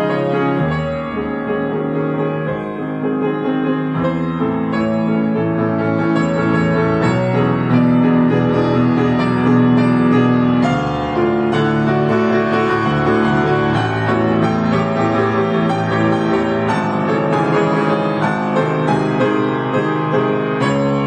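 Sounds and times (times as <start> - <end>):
grand piano chords: 0.0 - 21.0.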